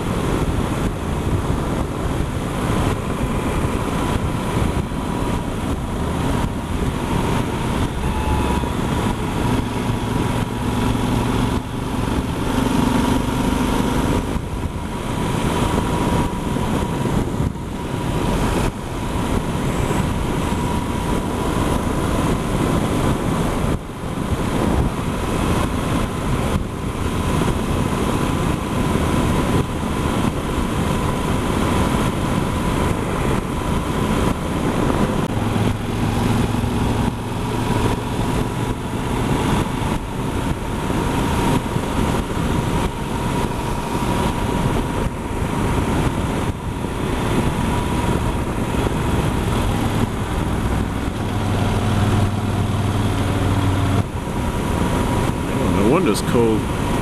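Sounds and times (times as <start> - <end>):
motorcycle engine running: 0.0 - 55.9
wind rush over microphone: 0.0 - 57.0
thin steady whine: 1.4 - 24.0, 39.9 - 57.0.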